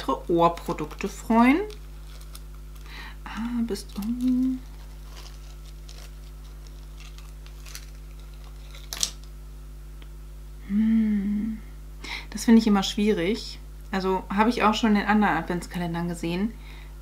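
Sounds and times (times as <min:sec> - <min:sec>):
jewellery packaging rustling: 0:00.4 - 0:02.9, 0:03.7 - 0:09.3
person humming: 0:02.9 - 0:04.7, 0:10.6 - 0:11.8.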